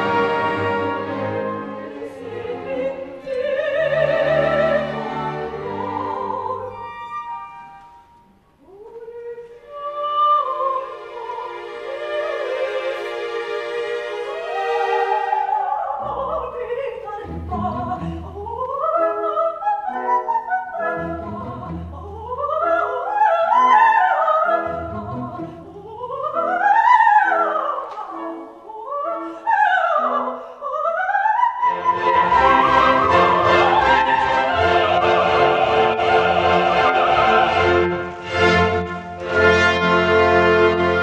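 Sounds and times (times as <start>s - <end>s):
woman singing opera runs: 1.7s - 6.7s, 8.6s - 12.6s, 14.1s - 37.8s.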